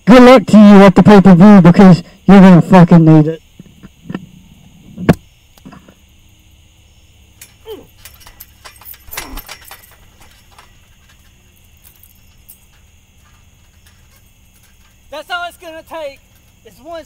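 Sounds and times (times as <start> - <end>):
trampoline springs jingling and creaking: 6.7 - 17.0.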